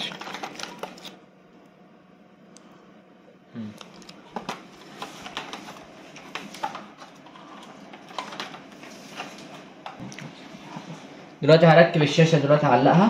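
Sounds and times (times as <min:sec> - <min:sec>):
plastic device handling clicks and rustles: 0:00.0 - 0:01.2, 0:03.8 - 0:10.2.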